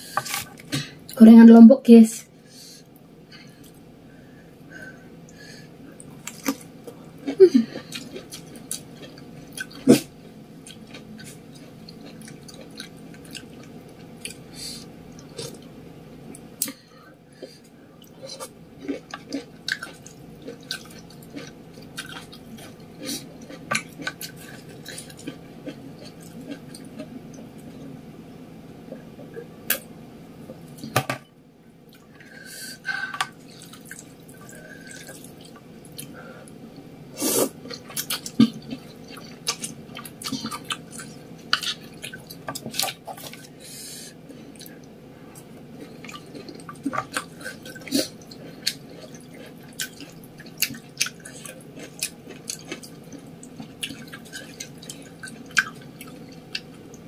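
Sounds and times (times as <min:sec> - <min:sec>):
wet slurping and chewing: 0:44.6 - 0:56.7.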